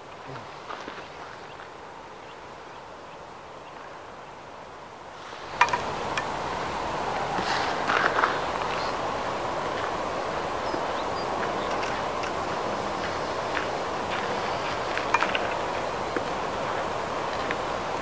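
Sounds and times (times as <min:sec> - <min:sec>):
wind and grass hiss: 0:00.0 - 0:18.0
antlers clacking: 0:05.6 - 0:06.4.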